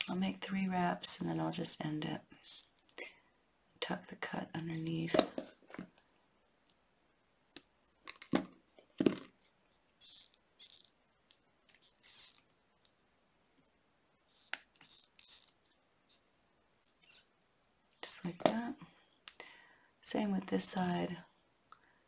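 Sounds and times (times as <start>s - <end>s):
wire scratchy rasps: 2.4s - 3.0s, 10.0s - 11.0s, 11.7s - 12.9s, 14.3s - 16.2s, 16.8s - 17.4s.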